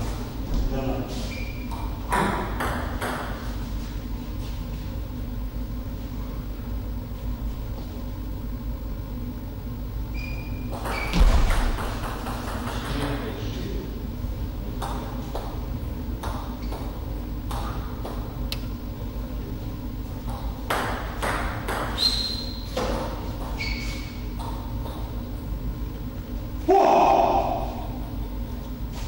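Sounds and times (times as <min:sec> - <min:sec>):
steady low hum: 0:00.0 - 0:29.0
table tennis ball bouncing: 0:01.7 - 0:03.4, 0:10.6 - 0:13.2, 0:20.3 - 0:22.0.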